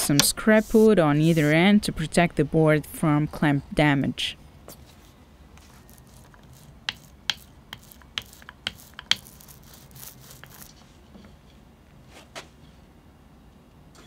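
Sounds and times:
glue roller clicking and tapping: 5.8 - 10.7.

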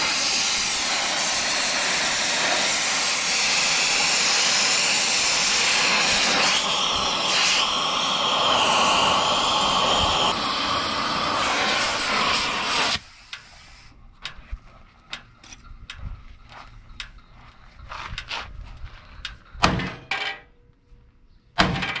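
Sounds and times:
gas torch flame hissing: 0.0 - 14.0.

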